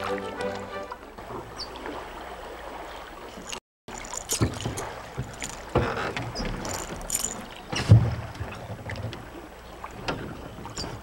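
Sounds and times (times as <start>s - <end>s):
fish splashing: 3.4s - 8.3s.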